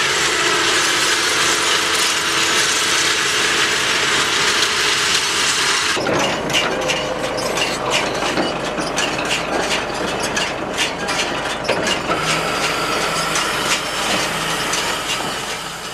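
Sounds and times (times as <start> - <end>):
tractor engine running: 0.0 - 15.9
baler chains clattering: 6.0 - 15.9
high whine: 12.1 - 15.9.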